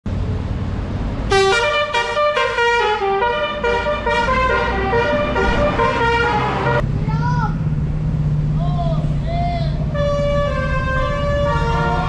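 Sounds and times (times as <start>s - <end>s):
bus engine rumble: 0.1s - 12.0s
musical air horn tune: 1.3s - 6.8s, 10.0s - 12.0s.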